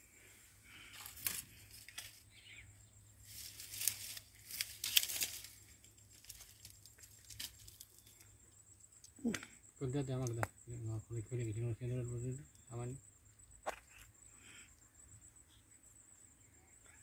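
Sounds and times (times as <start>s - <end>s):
faint rustling and crackling: 3.2s - 8.3s.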